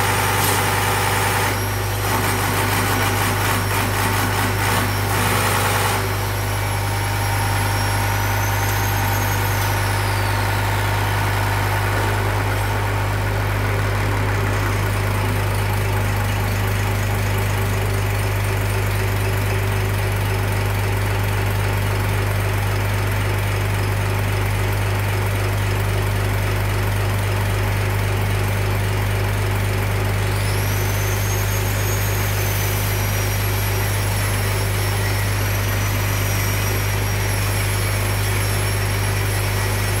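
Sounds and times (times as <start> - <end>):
high mechanical whine: 0.0 - 19.9, 29.8 - 40.0
injection pump test bench hum: 0.0 - 23.2, 29.0 - 40.0.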